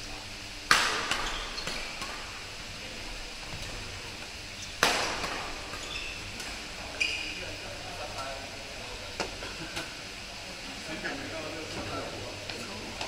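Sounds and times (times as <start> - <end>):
racket striking shuttlecock: 0.7 - 2.3, 4.8 - 5.8.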